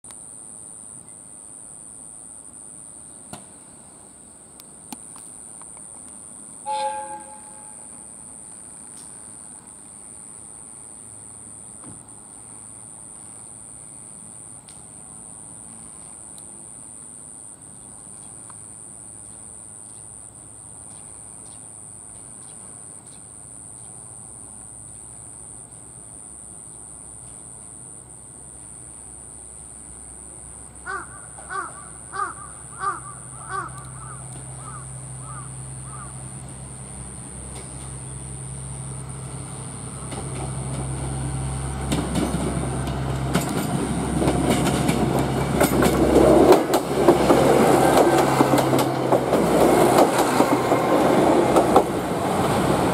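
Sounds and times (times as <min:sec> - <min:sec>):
diesel railcar engine rumble: 0:06.0 - 0:10.0, 0:30.4 - 0:52.9
train two-tone horn blast: 0:06.6 - 0:08.1
high-pitched drone: 0:06.7 - 0:08.2.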